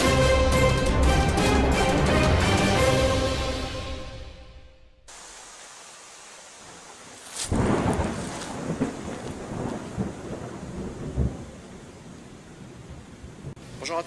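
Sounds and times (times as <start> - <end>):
intro music: 0.0 - 5.0
footsteps crunching through dry leaves: 5.1 - 9.4.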